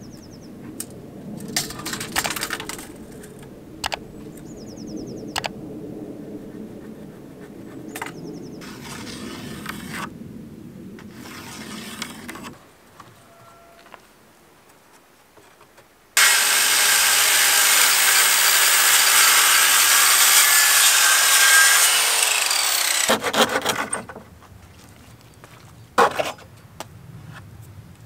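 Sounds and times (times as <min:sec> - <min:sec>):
pencil scratching on wood: 0:11.2 - 0:12.5.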